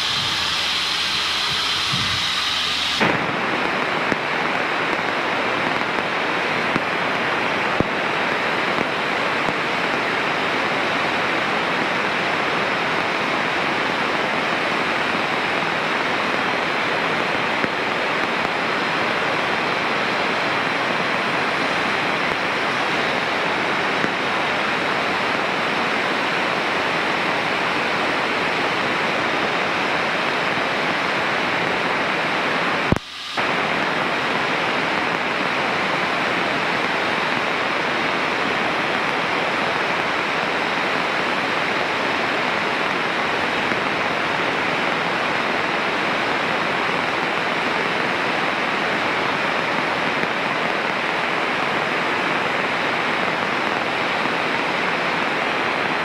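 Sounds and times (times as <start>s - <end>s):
aircraft cockpit rushing noise: 0.0s - 5.2s.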